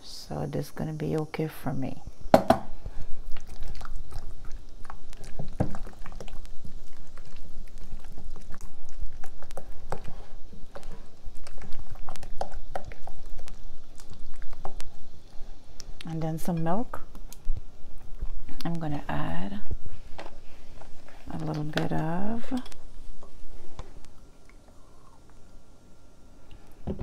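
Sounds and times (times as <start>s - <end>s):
spatula stirring wet mixture: 3.0s - 15.6s.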